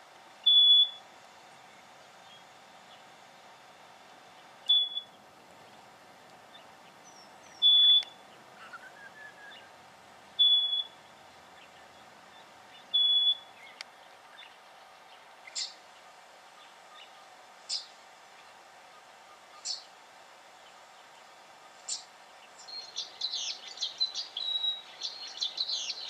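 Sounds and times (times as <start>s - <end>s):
bird whistled notes: 4.7s - 5.1s, 7.1s - 9.7s, 10.4s - 11.0s, 12.9s - 13.6s.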